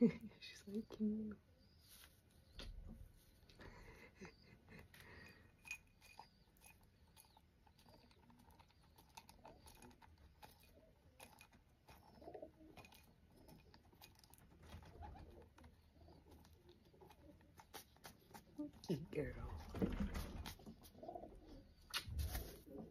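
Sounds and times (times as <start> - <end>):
pigeon pecking at glass jar: 4.8 - 22.9.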